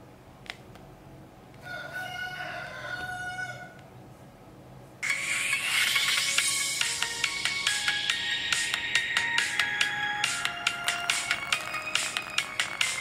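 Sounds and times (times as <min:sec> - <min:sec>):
rooster crowing: 0:01.6 - 0:03.8
music from speaker: 0:05.0 - 0:13.0.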